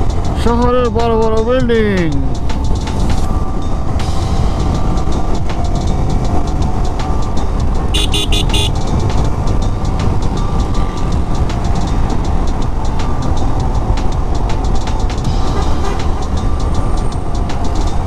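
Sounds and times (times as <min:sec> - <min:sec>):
motorcycle engine at speed: 0:03.0 - 0:18.0
vehicle horn short beeps: 0:07.9 - 0:08.8.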